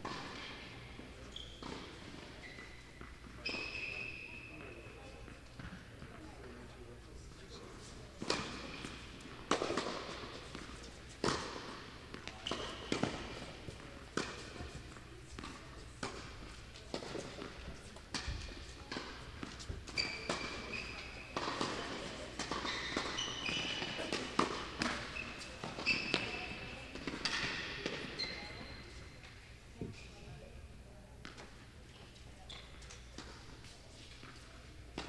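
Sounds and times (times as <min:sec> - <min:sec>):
ball bouncing on court: 0:08.2 - 0:13.6, 0:14.2 - 0:28.8
tennis ball struck by rackets: 0:09.5 - 0:19.6.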